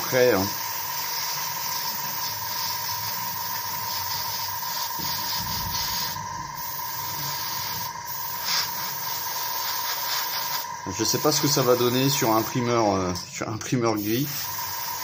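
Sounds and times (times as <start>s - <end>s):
airbrush air hiss: 0.0s - 15.0s
low hum: 5.0s - 8.2s.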